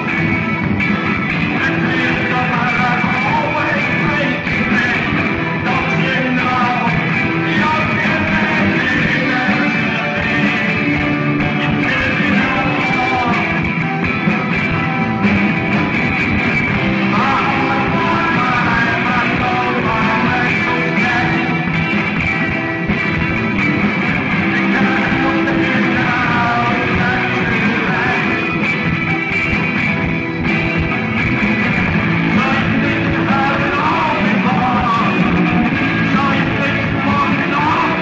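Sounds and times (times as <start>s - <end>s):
drum kit beat: 0.0s - 38.0s
electric bass: 0.0s - 38.0s
live rock band playing: 0.0s - 38.0s.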